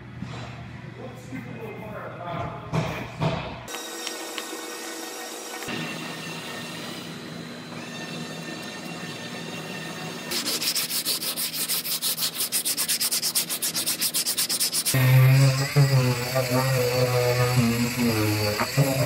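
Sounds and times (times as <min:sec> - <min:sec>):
rotary tool grinding: 0:03.8 - 0:19.0
hand sanding scraping strokes: 0:10.3 - 0:19.0.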